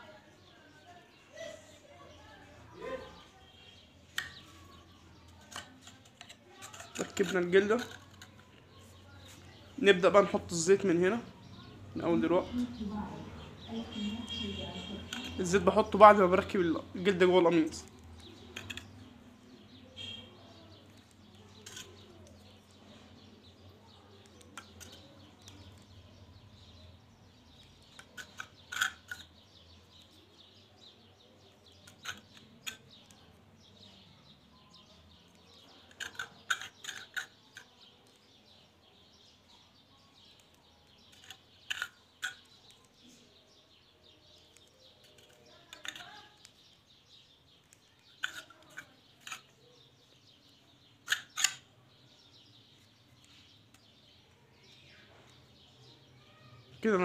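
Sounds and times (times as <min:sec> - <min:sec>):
metal parts clicking and scraping: 0:04.2 - 0:08.6, 0:14.9 - 0:16.4, 0:17.5 - 0:20.1, 0:20.8 - 0:26.0, 0:27.5 - 0:30.2, 0:31.6 - 0:33.9, 0:34.7 - 0:38.4, 0:40.2 - 0:43.1, 0:44.2 - 0:55.4.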